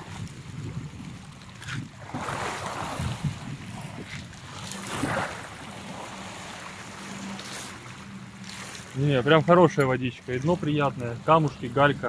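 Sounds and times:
wind rumbling on microphone: 0.0 - 6.6
waves washing over pebbles: 0.0 - 12.0.

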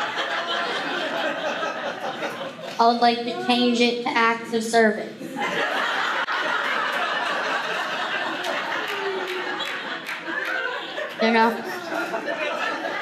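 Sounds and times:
audience laughing: 0.0 - 2.8, 5.2 - 13.0
scattered claps: 8.3 - 11.3.

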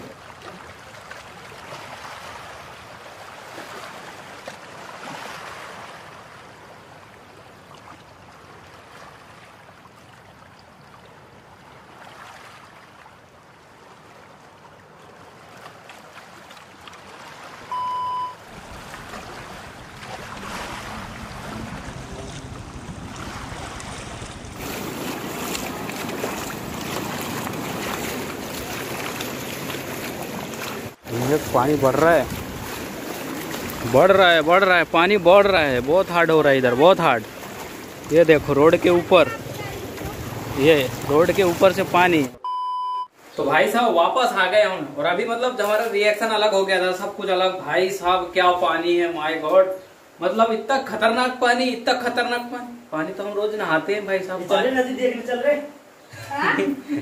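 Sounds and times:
floodwater rushing: 0.0 - 42.4
short electronic beep: 17.7 - 18.4, 42.4 - 43.1.

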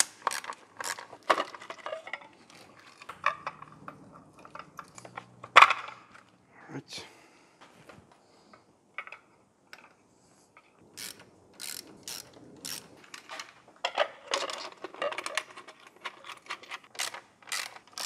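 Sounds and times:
hand tools clicking and knocking: 0.0 - 6.2, 11.0 - 18.0
plastic parts clicking: 0.0 - 6.3, 11.0 - 18.0.

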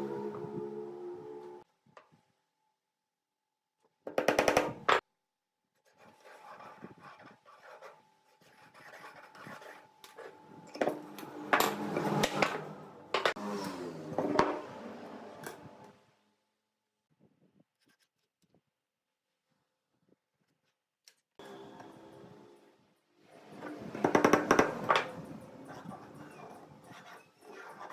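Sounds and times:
pencil scratching on wood: 5.8 - 10.3, 25.6 - 27.9.

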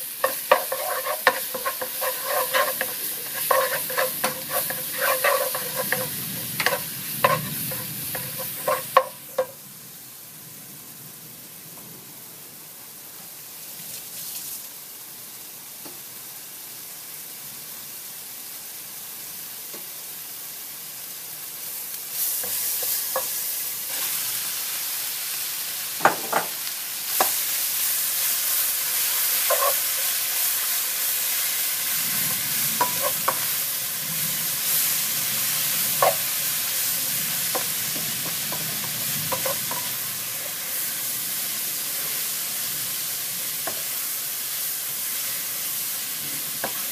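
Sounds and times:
wooden spatula scraping a pan: 0.0 - 9.5, 28.4 - 33.8, 35.6 - 40.9
vegetables sizzling in a wok: 0.0 - 46.9.

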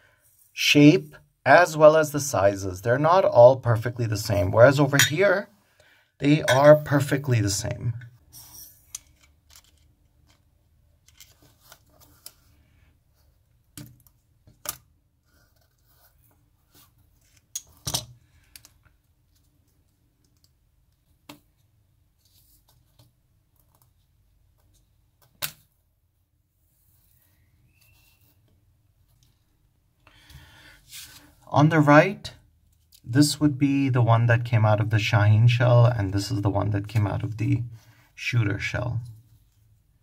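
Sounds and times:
light plastic clicks and rustles: 8.9 - 12.5.

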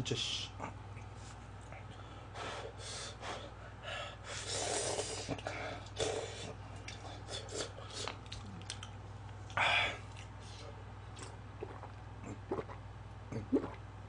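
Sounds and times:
person gulping a drink: 6.8 - 10.4, 11.1 - 13.9
person chewing: 6.8 - 12.7.

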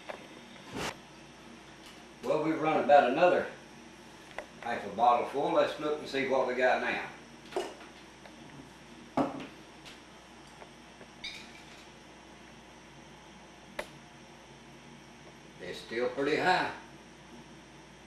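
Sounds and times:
glass clink ringing: 11.2 - 11.8.

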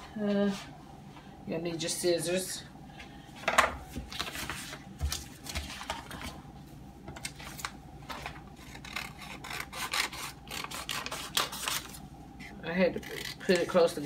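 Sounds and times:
scissors snipping vinyl: 8.2 - 12.0.

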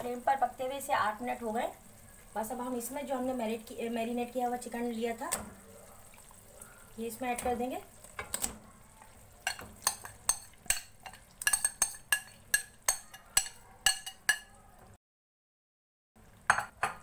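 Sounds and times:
metal spoon clinking against pan: 9.4 - 14.6.

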